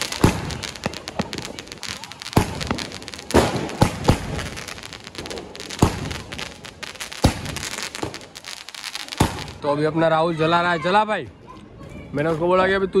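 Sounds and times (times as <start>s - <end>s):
firecracker bangs: 0.0s - 9.6s.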